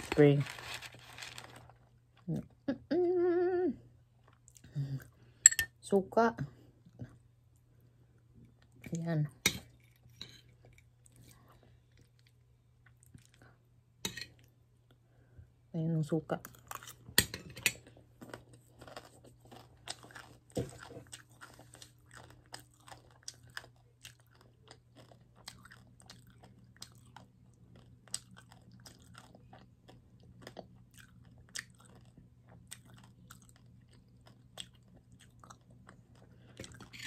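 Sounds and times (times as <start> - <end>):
person chewing food: 9.6 - 13.6, 16.5 - 37.0.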